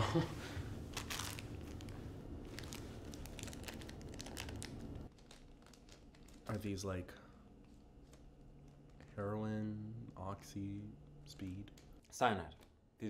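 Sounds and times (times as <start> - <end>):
low steady hum: 0.0 - 13.0
plastic pill packet crinkling: 0.9 - 6.8.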